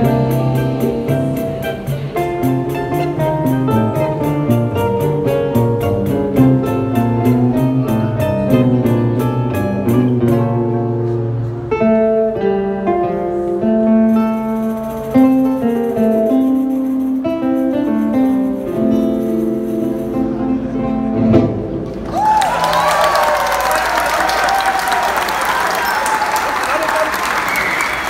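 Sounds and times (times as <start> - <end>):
classical guitars playing: 0.0 - 22.0.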